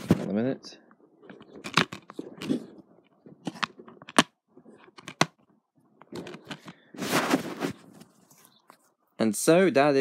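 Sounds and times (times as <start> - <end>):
sharp handling clicks and knocks: 1.2 - 6.9.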